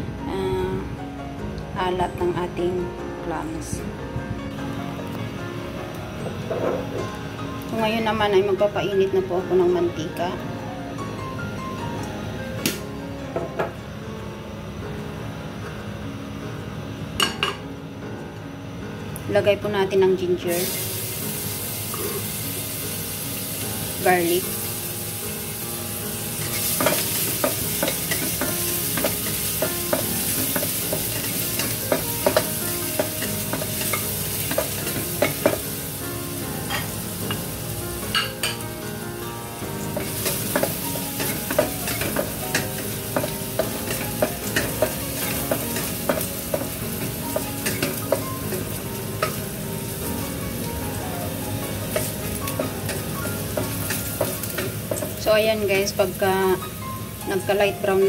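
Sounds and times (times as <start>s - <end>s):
garlic sizzling in hot oil: 20.4s - 58.0s.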